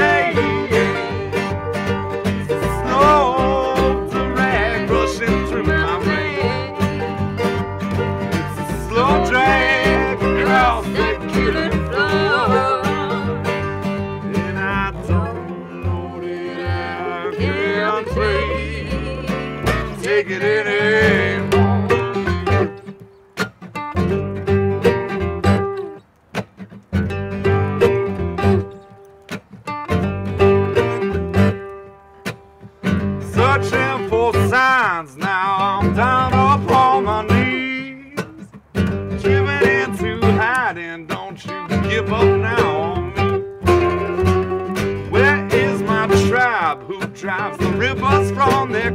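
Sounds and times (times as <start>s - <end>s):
woman singing: 0.0s - 1.4s, 2.5s - 6.8s, 8.5s - 13.5s, 14.6s - 22.1s
man singing with vibrato: 0.0s - 7.4s, 8.0s - 22.5s, 33.2s - 44.1s, 44.9s - 48.9s
acoustic guitar: 0.0s - 48.9s
mandolin: 0.0s - 48.9s
plucked upright bass: 0.0s - 48.9s.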